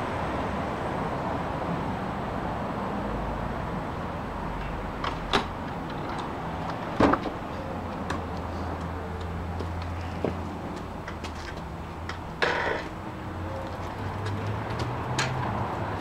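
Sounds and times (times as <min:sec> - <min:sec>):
wooden door clunk: 0:07.0 - 0:07.4.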